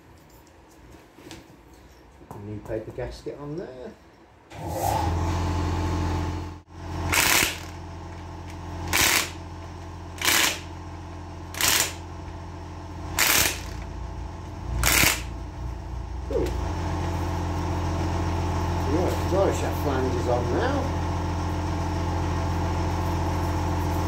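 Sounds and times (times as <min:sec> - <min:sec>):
steady low hum: 0:05.3 - 0:24.0
impact driver bursts: 0:07.1 - 0:07.8, 0:08.8 - 0:09.4, 0:10.2 - 0:10.7, 0:11.5 - 0:12.0, 0:13.1 - 0:13.9, 0:14.8 - 0:15.3.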